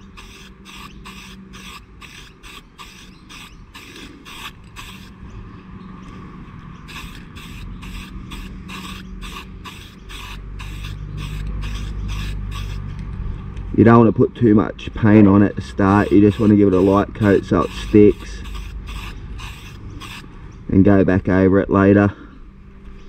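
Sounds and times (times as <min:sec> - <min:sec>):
aerosol spray can hissing: 0:00.0 - 0:05.2, 0:06.9 - 0:12.9, 0:15.8 - 0:20.3.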